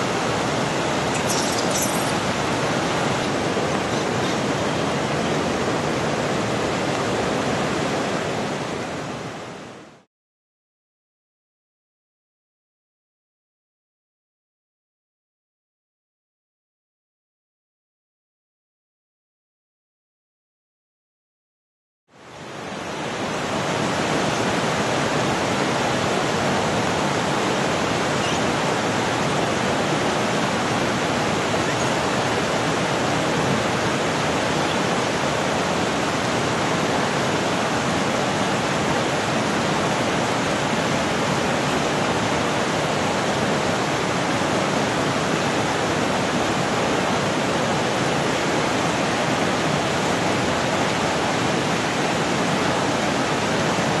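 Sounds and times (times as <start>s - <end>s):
flowing water rushing: 0.0s - 10.1s, 22.1s - 54.0s.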